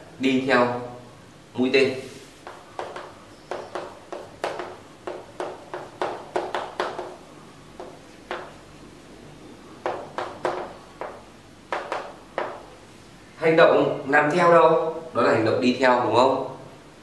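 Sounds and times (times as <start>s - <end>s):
chalk tapping and scraping on board: 2.3s - 8.7s, 9.8s - 12.8s.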